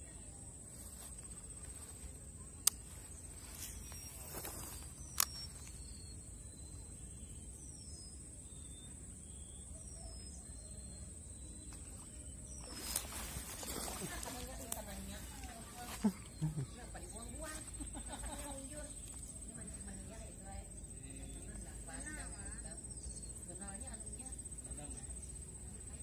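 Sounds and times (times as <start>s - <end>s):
faint bird chirps: 0.0s - 26.0s
sharp clicks: 2.6s - 3.0s, 3.8s - 5.9s.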